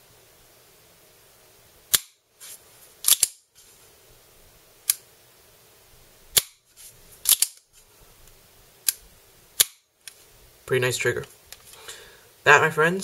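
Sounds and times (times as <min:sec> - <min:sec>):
pistol slide worked by hand: 0:01.9 - 0:03.4, 0:07.2 - 0:07.8, 0:09.6 - 0:10.2
airsoft pistol trigger clicks: 0:03.1 - 0:03.4.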